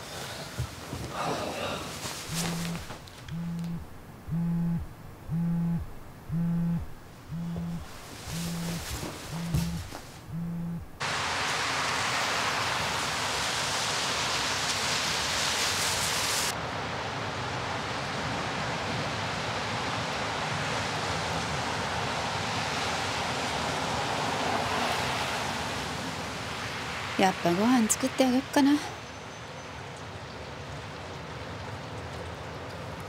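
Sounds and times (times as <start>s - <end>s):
steady rain falling: 0.0s - 5.2s, 11.0s - 29.0s.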